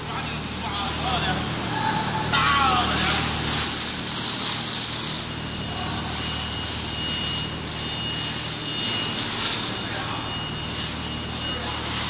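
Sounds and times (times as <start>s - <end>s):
plastic film rustling: 2.6s - 6.8s.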